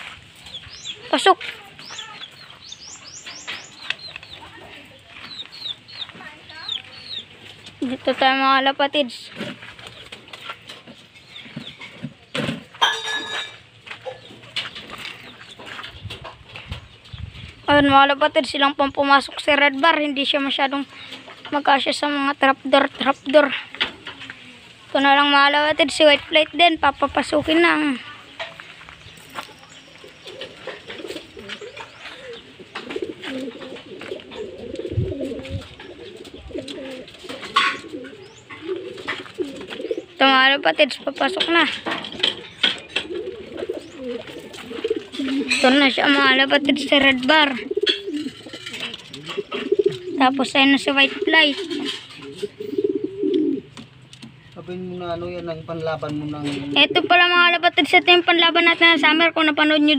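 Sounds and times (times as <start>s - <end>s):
birds clicking and knocking on roof: 0.5s - 4.6s, 9.3s - 17.0s, 30.2s - 58.8s
rustle: 22.9s - 25.0s, 28.0s - 40.2s, 41.7s - 46.0s
pigeons cooing: 29.3s - 59.8s.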